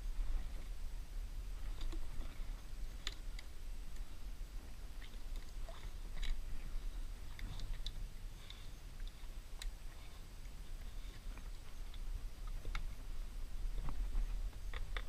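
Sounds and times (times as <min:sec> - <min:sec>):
steady low rumble: 0:00.0 - 0:15.0
water lapping against kayak hull: 0:01.4 - 0:15.0.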